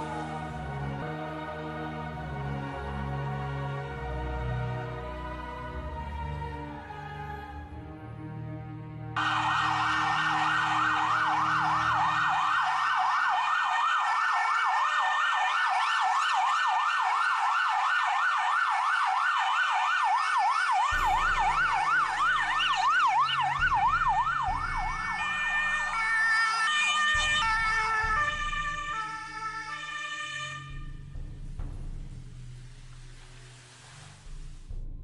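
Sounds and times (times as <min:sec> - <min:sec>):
ambulance siren: 0:09.2 - 0:31.4.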